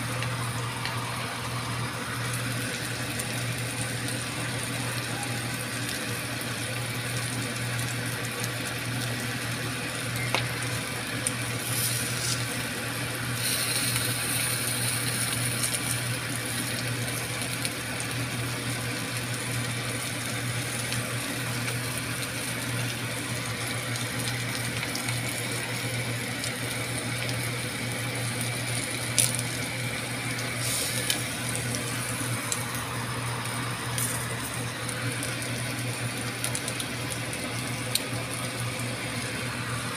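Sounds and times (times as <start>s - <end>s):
mussels sizzling in butter: 10.1s - 25.6s, 26.2s - 39.9s.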